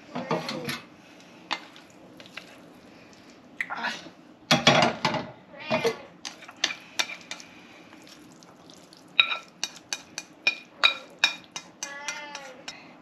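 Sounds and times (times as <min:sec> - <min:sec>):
chopsticks scraping frying pan: 0:06.2 - 0:07.5, 0:09.2 - 0:12.8.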